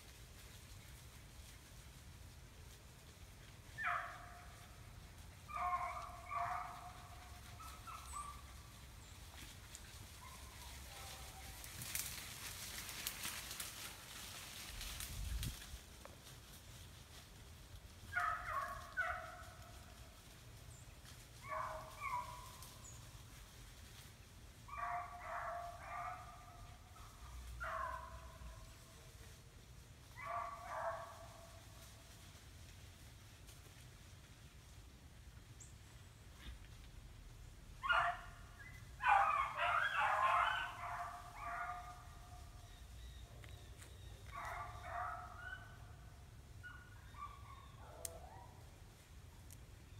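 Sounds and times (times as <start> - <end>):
dogs barking: 3.8 - 4.7, 5.4 - 8.8, 10.1 - 11.6, 18.1 - 19.8, 21.4 - 22.6, 24.7 - 28.6, 30.2 - 31.4, 37.8 - 42.6, 44.2 - 48.7
hound baying: 5.4 - 8.6, 18.1 - 19.8, 21.4 - 22.7, 24.7 - 28.5, 30.2 - 31.4, 37.8 - 42.8, 44.2 - 48.7.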